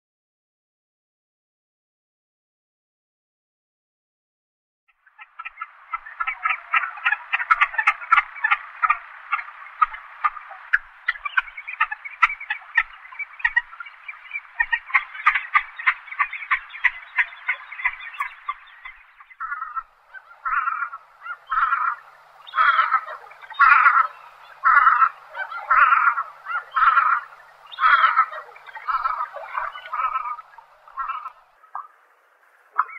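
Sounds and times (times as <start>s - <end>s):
sea duck calling: 5.0s - 32.9s.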